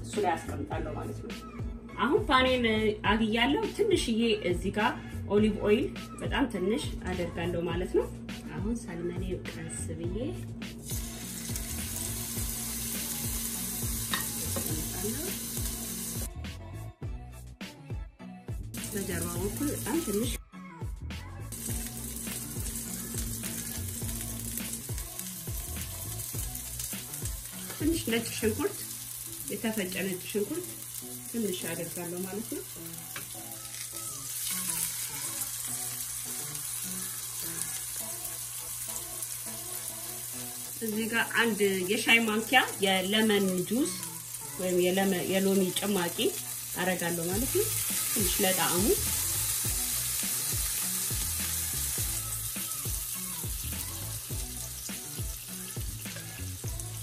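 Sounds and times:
soft background music: 0.0 - 57.0
fish sizzling in frying pan: 10.8 - 16.3, 18.8 - 20.4, 21.5 - 57.0.

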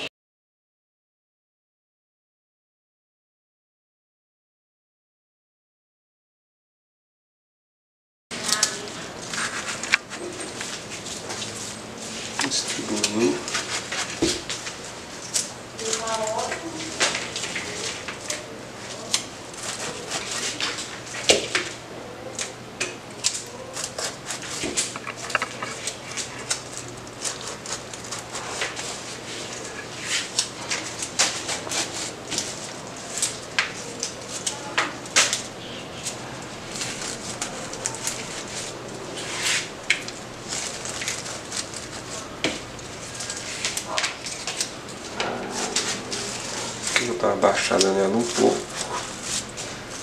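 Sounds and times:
flower stems rustling and crackling: 8.3 - 50.0.

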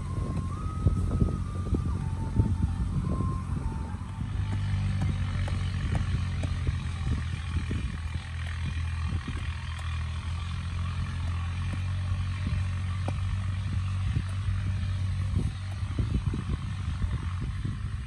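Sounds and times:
low mechanical drone: 0.0 - 18.0
hatchet chopping stony soil: 3.0 - 17.1.

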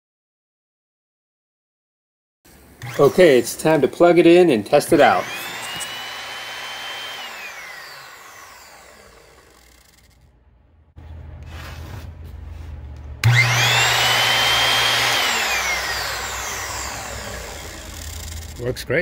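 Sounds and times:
circular saw motor whining: 2.8 - 3.8, 4.9 - 10.3, 13.2 - 18.7.

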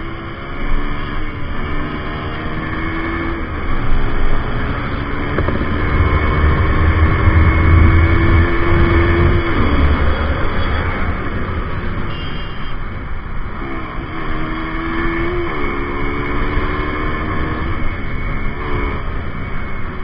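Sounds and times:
motorcycle engine: 0.0 - 12.8, 13.4 - 20.0
wind buffeting: 3.4 - 11.9.

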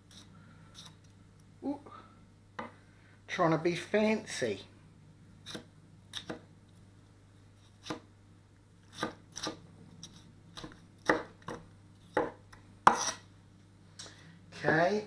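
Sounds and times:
knife chopping on wooden board: 8.9 - 9.6, 10.6 - 13.2.

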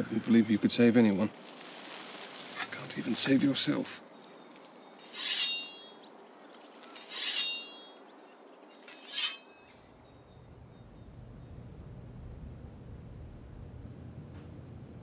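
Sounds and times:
sharpening stone rasping on blade: 5.0 - 5.9, 7.0 - 7.9, 8.9 - 9.7
metallic ring of blade: 5.0 - 6.0, 7.0 - 8.0, 8.9 - 9.8.

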